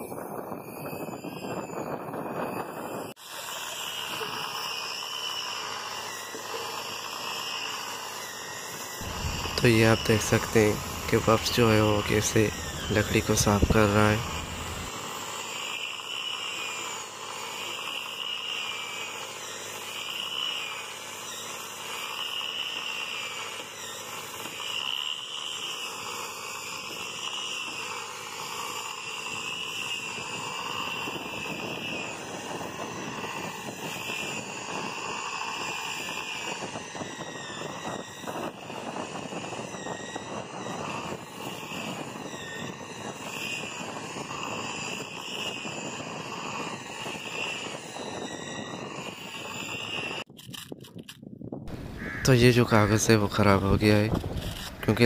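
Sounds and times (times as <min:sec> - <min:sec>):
air sander whining: 0:00.0 - 0:50.3, 0:51.7 - 0:55.0
scratchy sanding hiss on wood: 0:03.3 - 0:32.4.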